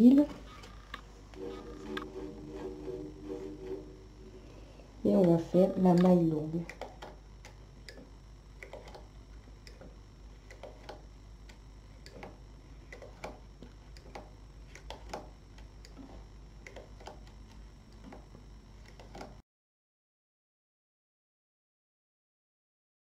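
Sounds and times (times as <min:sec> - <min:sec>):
knitting machine needles clicking: 0:05.2 - 0:18.2, 0:18.8 - 0:19.4.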